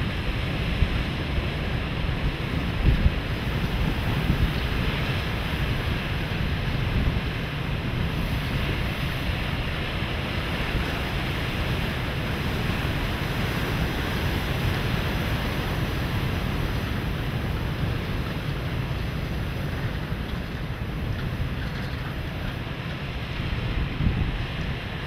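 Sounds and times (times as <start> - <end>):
sea waves: 0.0 - 25.0
wind buffeting microphone: 0.0 - 25.0.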